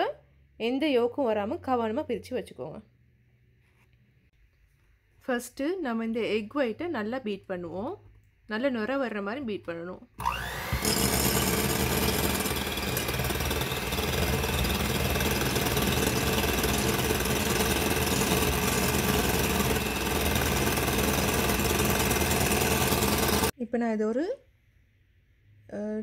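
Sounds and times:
electric hand mixer whirring: 10.2s - 23.5s.

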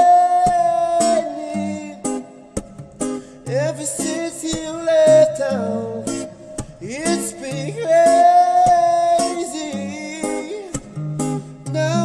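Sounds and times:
person singing: 0.0s - 2.3s, 3.5s - 10.9s, 11.6s - 12.0s
acoustic guitar strumming: 0.0s - 12.0s.

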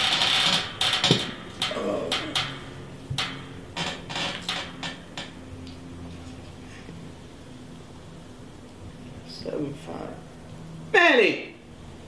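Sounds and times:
hard objects clicking and knocking: 0.0s - 5.1s.

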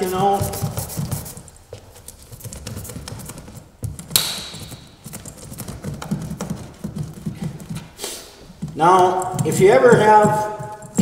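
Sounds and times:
seam roller clicking and tapping: 2.4s - 7.9s.

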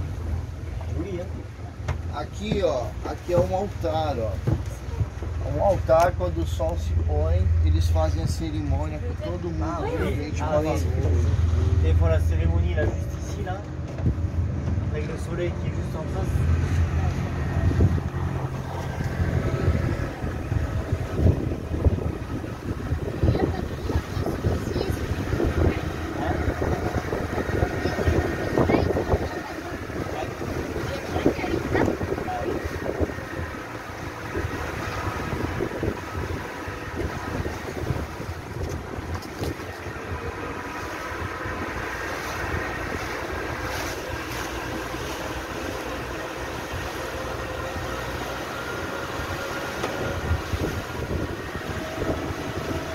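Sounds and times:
motorboat engine running: 0.0s - 52.9s
water rushing along hull: 0.0s - 52.9s
wind buffeting microphone: 12.4s - 52.9s.

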